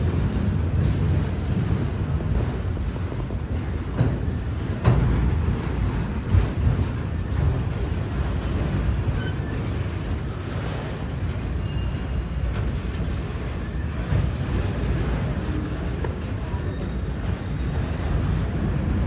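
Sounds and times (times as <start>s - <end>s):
freight train wheels rumbling: 0.0s - 19.0s
faint short wheel squeals: 11.4s - 12.7s.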